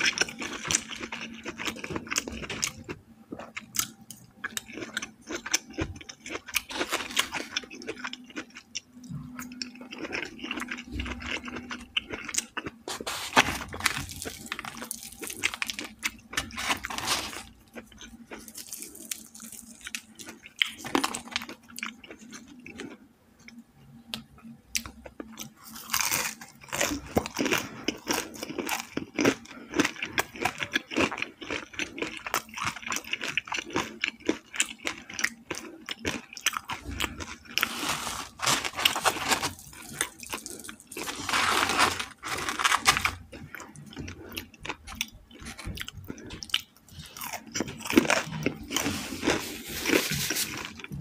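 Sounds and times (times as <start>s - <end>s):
crisp breading crackling: 4.6s - 8.6s, 9.8s - 23.0s, 25.6s - 50.9s
wet chewing: 24.8s - 51.0s
crunching bites: 30.9s - 50.6s.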